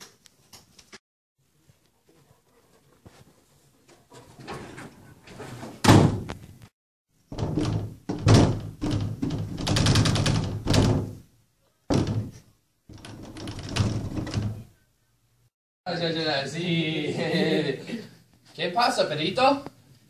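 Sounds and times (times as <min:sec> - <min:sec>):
banging on wooden door: 0:05.8 - 0:06.4, 0:07.3 - 0:11.3, 0:11.9 - 0:14.7
door rattling: 0:07.3 - 0:11.3, 0:11.9 - 0:14.7.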